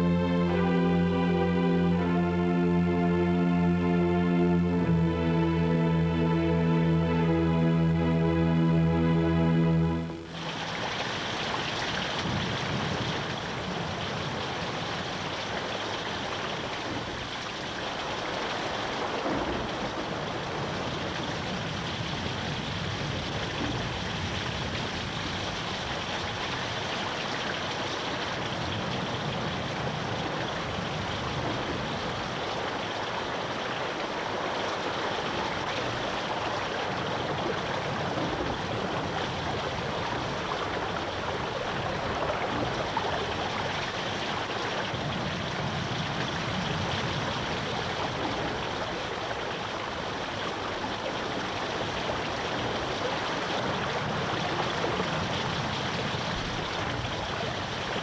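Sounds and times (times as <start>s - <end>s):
fast-flowing water rushing: 0.0s - 58.0s.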